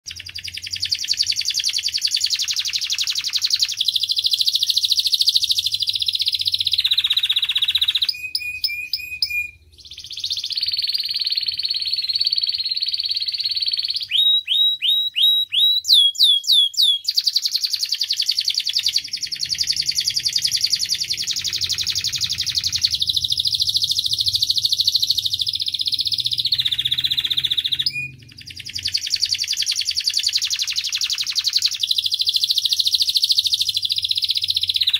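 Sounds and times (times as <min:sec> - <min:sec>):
canary singing trills: 0:00.0 - 0:34.9.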